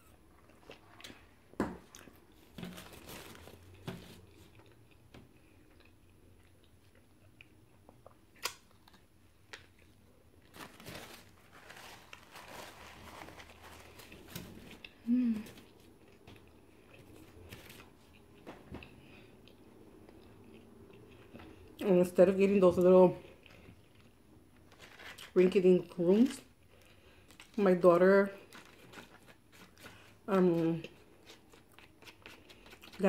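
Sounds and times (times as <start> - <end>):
paper wrapper crinkling: 2.4 - 4.2, 10.4 - 15.9, 24.6 - 25.6, 28.4 - 30.2
person chewing and biting: 3.2 - 10.5, 31.0 - 33.0
person humming: 15.0 - 15.6.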